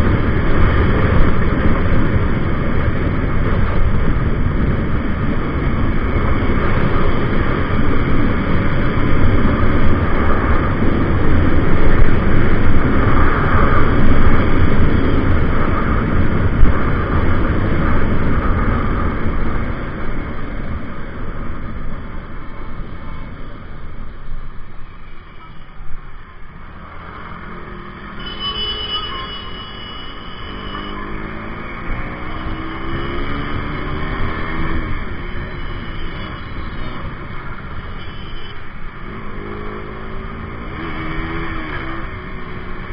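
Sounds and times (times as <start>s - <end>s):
wind rush: 0.0s - 25.0s
motorcycle engine: 26.7s - 42.9s.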